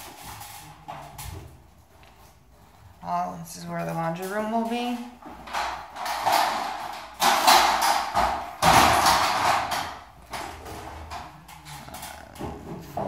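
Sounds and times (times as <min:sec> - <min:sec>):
metal banging and rattling: 0:03.7 - 0:13.0.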